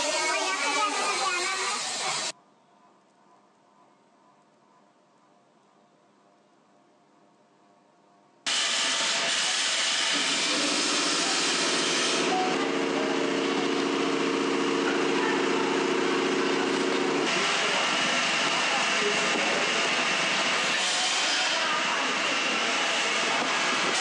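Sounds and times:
machinery hiss: 0.0s - 2.3s, 8.5s - 12.6s.

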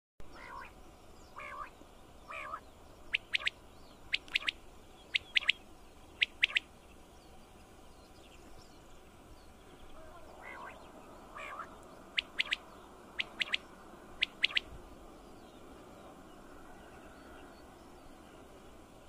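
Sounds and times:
soft low quail calls: 0.3s - 0.8s, 1.4s - 5.6s, 6.2s - 6.7s, 9.9s - 14.7s.

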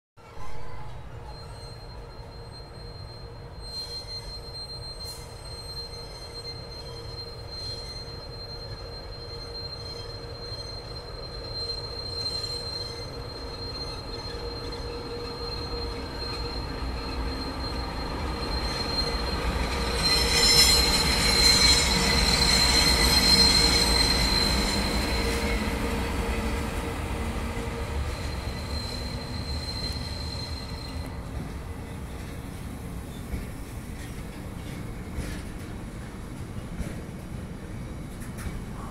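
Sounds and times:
train rumble: 0.2s - 38.9s
high-pitched squeal: 1.2s - 31.2s.

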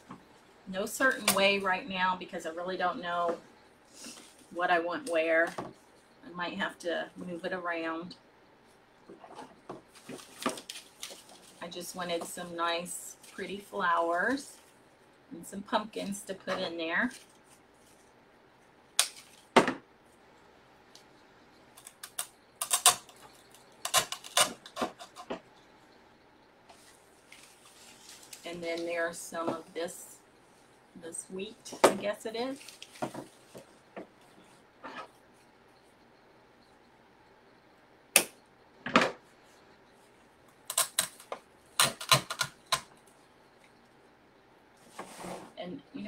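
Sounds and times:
plastic flowers rustling and clicking: 9.2s - 12.3s, 26.7s - 28.9s, 32.5s - 33.8s
artificial flower stems clicking: 21.7s - 25.5s, 40.6s - 43.0s.

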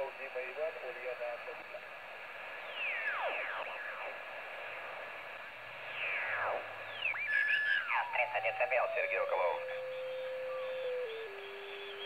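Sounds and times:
radio band hiss: 0.0s - 10.6s
steady radio tone: 0.0s - 12.0s
radio whistling tones: 2.6s - 4.9s, 5.8s - 12.0s.

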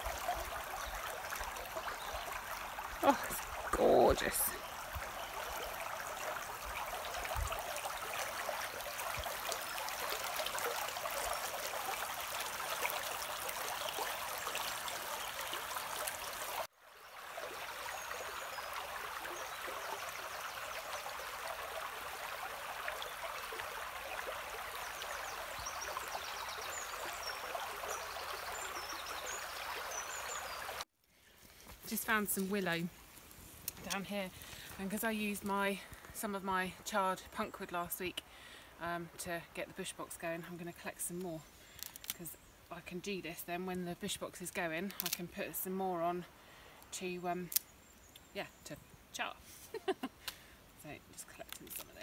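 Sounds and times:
brook bubbling: 0.0s - 30.8s.

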